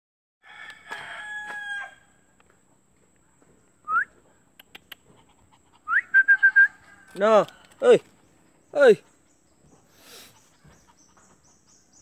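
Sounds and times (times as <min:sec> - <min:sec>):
distant rooster crowing: 0:00.4 - 0:02.2
person whistling: 0:03.8 - 0:04.1, 0:05.9 - 0:06.7.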